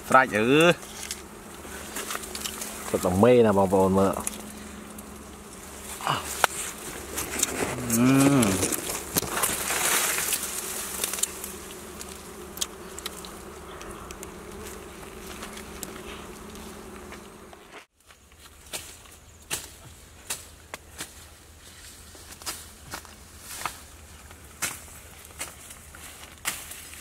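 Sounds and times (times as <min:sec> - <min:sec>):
bees buzzing: 0:00.0 - 0:17.9
wax comb crackling: 0:00.3 - 0:17.4.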